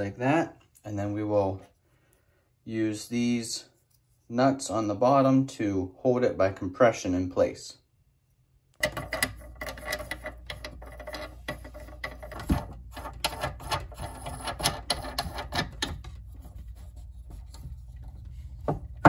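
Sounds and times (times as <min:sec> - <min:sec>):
nut spinning on threads: 0:08.8 - 0:16.0.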